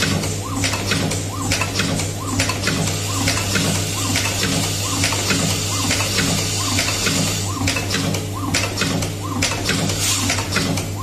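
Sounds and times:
machine low hum: 0:00.0 - 0:11.0.

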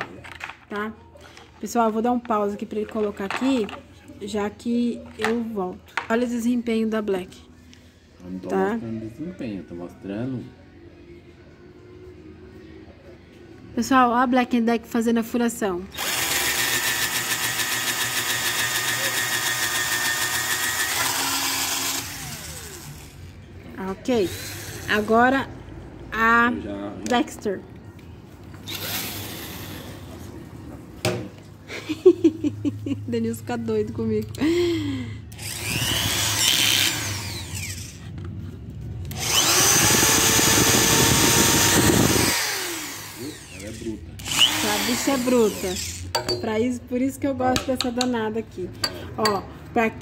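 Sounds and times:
cordless drill boring through board: 0:16.0 - 0:23.1, 0:28.7 - 0:29.9, 0:35.4 - 0:38.0, 0:39.1 - 0:46.0.

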